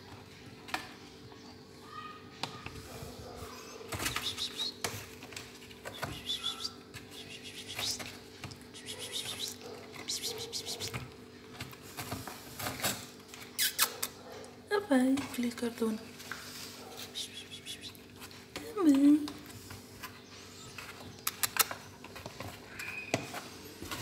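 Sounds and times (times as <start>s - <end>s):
kittens scratching cardboard box: 2.6s - 14.0s, 15.2s - 24.0s
kitten chirps: 13.6s - 14.0s.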